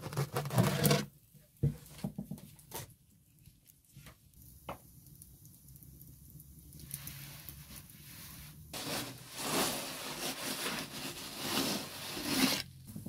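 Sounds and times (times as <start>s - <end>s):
wooden peel scraping oven floor: 0.0s - 1.1s, 8.8s - 12.8s.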